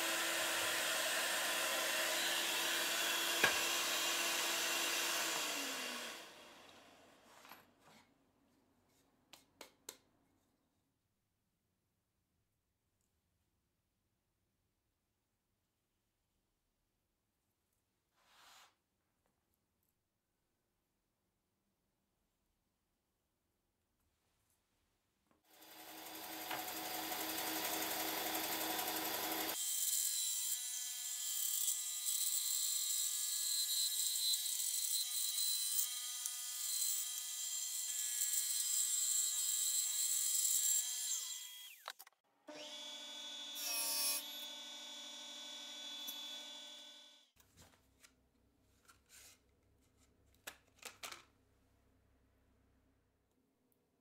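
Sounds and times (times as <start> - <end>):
rough power tool noise: 0.0 - 7.0, 25.5 - 41.9, 42.5 - 47.2.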